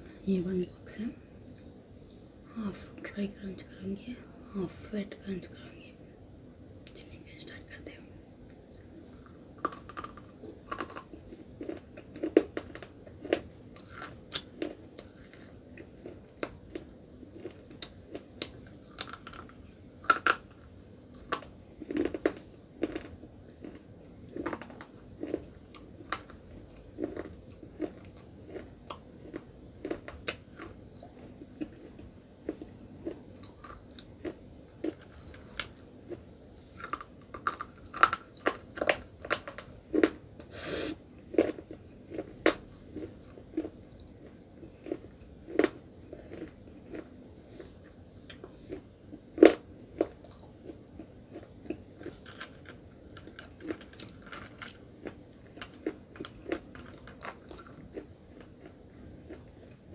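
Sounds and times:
soft grinding crunches: 8.5 - 40.4, 41.2 - 59.7.

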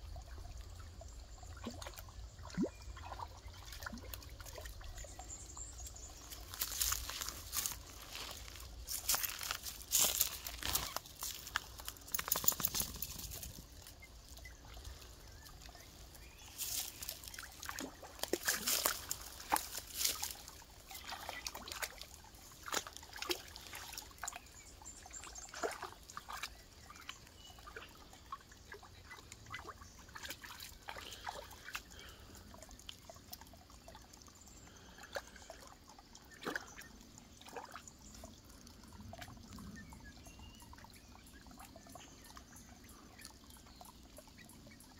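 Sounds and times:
dogs splashing in water: 6.4 - 34.0.

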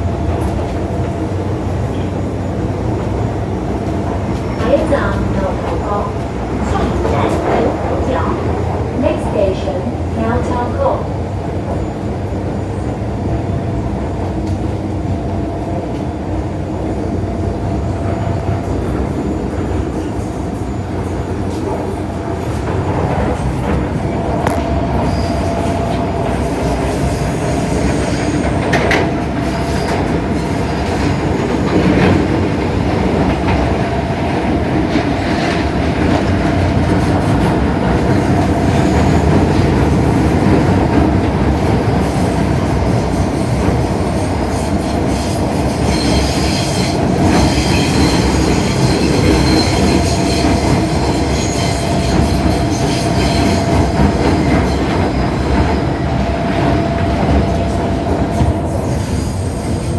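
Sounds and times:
train wheels rumbling on rail: 0.0 - 59.9
high-pitched wheel squeal: 45.1 - 54.8.

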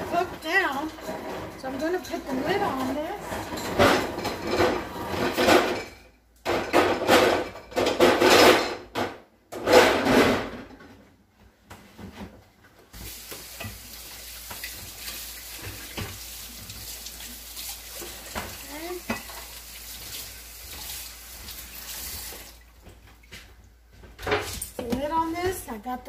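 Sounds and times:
metal pots and pans clattering: 0.0 - 10.9, 17.9 - 19.6.

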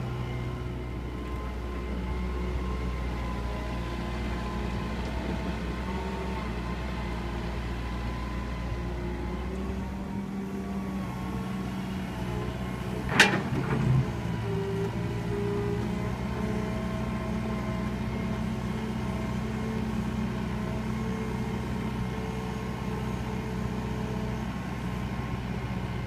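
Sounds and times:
excavator engine and hydraulic whine: 0.0 - 26.0
short rattle: 12.9 - 14.4.

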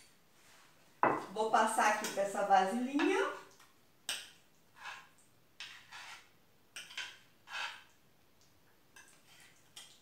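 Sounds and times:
spoon scraping container: 3.0 - 8.0, 9.0 - 10.0.

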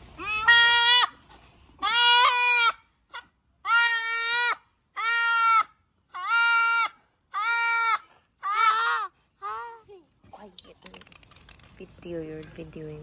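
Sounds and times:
goat kid bleating: 0.2 - 9.9.

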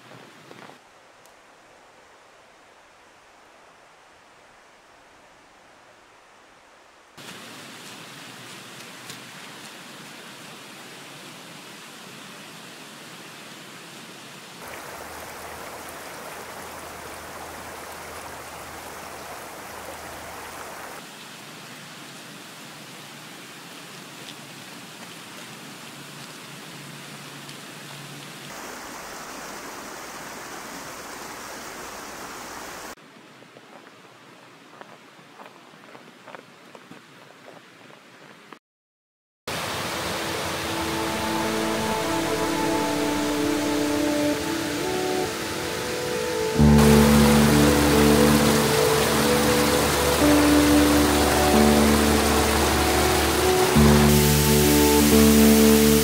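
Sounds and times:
waterfall rushing: 7.2 - 13.2, 14.6 - 21.1, 28.5 - 33.0, 39.5 - 56.0.

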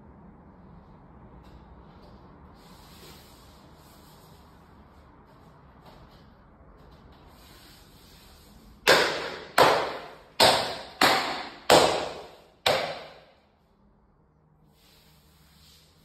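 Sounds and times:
hand slaps on wall panel: 8.8 - 13.3.

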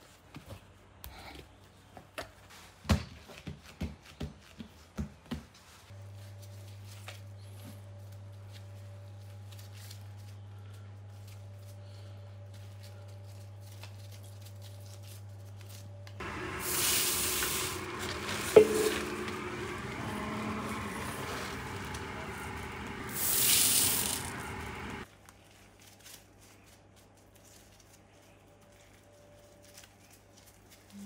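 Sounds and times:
low steady hum: 16.0 - 25.0
hand raking dry rice in bowl: 16.2 - 25.0.

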